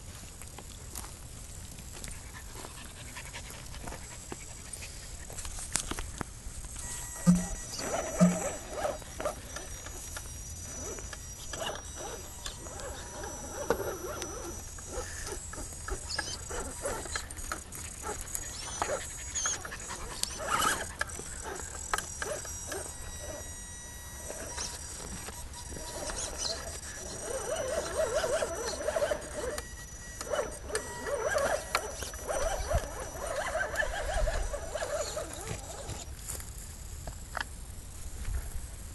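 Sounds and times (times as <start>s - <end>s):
electric motor whining: 6.7s - 36.1s.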